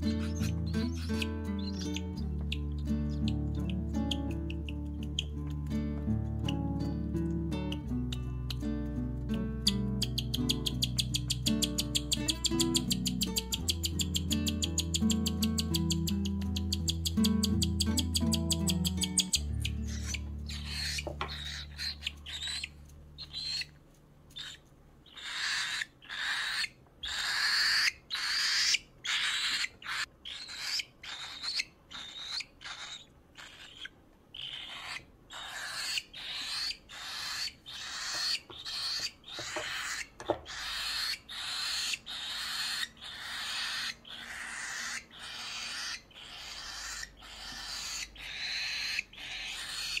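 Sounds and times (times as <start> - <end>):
bird chick hissing begging calls: 24.4 - 50.0.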